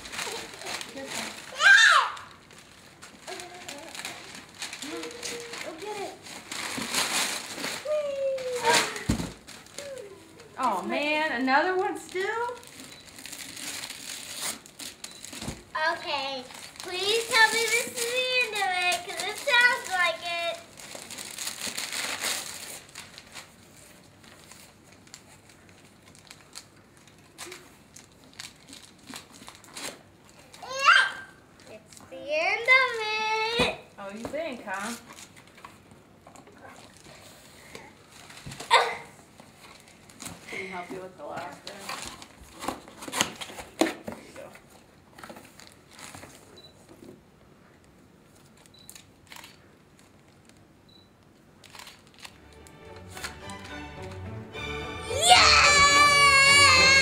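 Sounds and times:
wrapping paper crinkling: 0.0 - 30.8, 45.2 - 46.5, 48.3 - 50.7, 51.6 - 53.8, 55.1 - 57.0.

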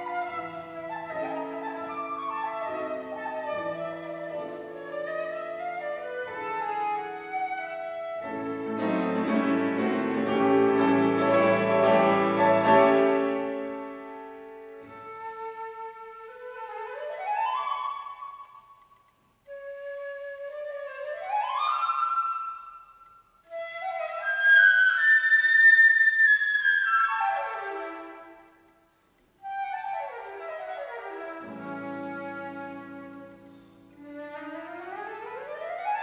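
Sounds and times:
concert flute: 0.0 - 36.0
piano chords: 8.2 - 15.0.

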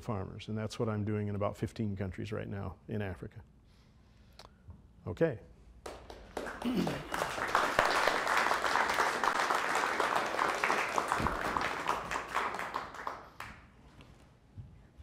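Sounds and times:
audience applauding: 5.8 - 13.7.

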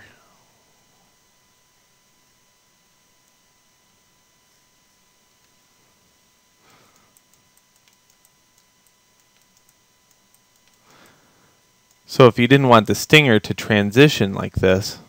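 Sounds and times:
faint electronic whine: 0.0 - 15.0
computer mouse clicks: 6.9 - 11.2.

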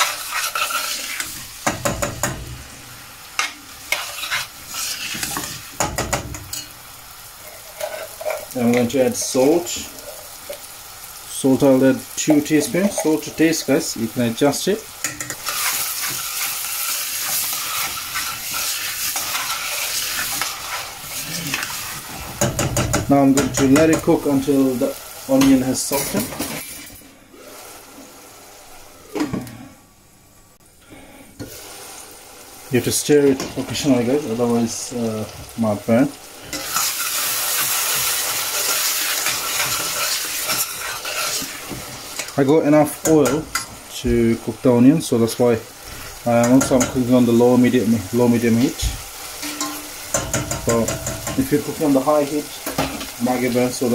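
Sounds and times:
spoon stirring against pan: 0.0 - 2.7, 3.3 - 11.2, 12.1 - 13.8, 15.0 - 27.0, 36.5 - 43.8, 45.9 - 47.2, 48.6 - 53.2
onions sizzling in oil: 0.0 - 30.4, 31.3 - 53.9.

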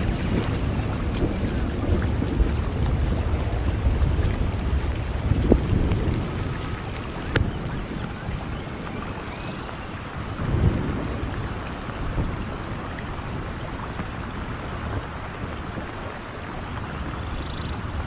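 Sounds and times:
low rumble: 0.0 - 8.2
heavy rain on stone and water: 0.0 - 18.0.

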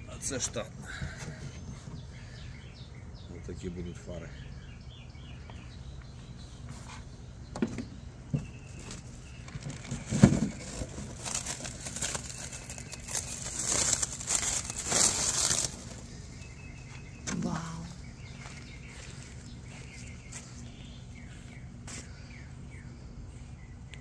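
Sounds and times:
plastic wrap crinkling: 8.9 - 16.0.

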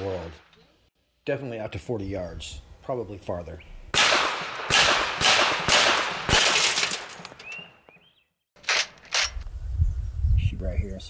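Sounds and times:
air pistol shots: 3.9 - 7.3
pellets hitting cinder block: 5.2 - 7.5.

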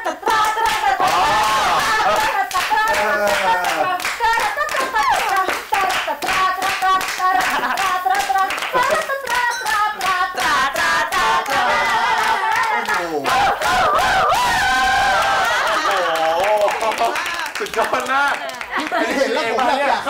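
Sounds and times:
people clapping in rhythm: 0.0 - 20.0.

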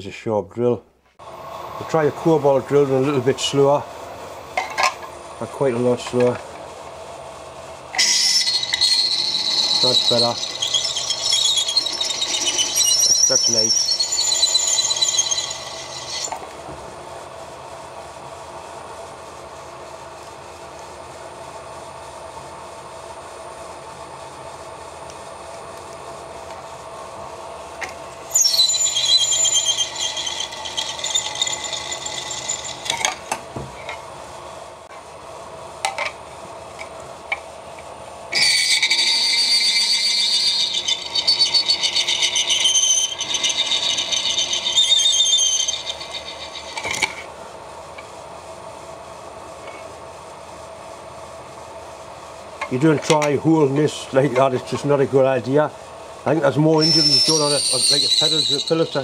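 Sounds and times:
spindle humming: 5.3 - 17.0, 23.6 - 34.0, 38.3 - 47.3
drill bit squealing through steel: 8.0 - 16.4, 28.3 - 33.1, 38.3 - 47.3, 56.8 - 59.0.

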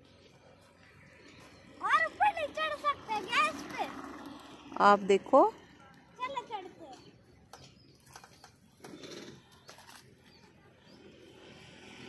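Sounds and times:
motor scooter engine: 1.0 - 7.6, 10.7 - 12.0.

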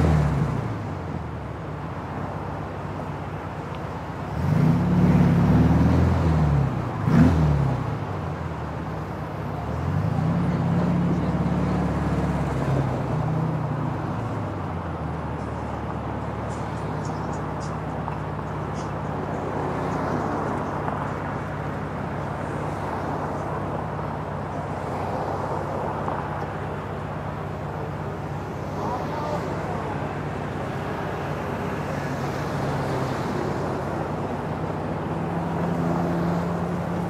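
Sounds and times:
street traffic passing: 0.0 - 37.0
car engine idling: 7.9 - 35.6.

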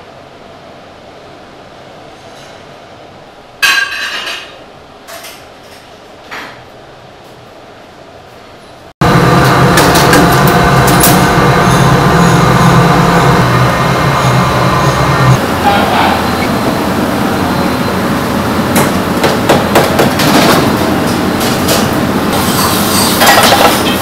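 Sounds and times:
steam cabinet running: 9.0 - 24.0.

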